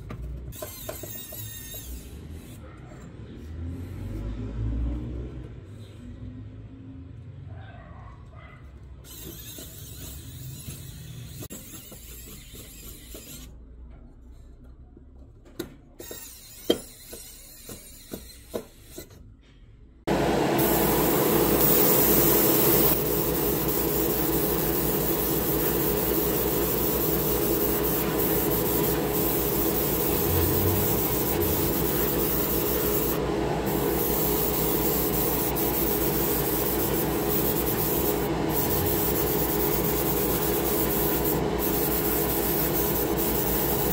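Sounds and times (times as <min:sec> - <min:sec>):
airbrush air hiss: 0:20.6 - 0:43.9.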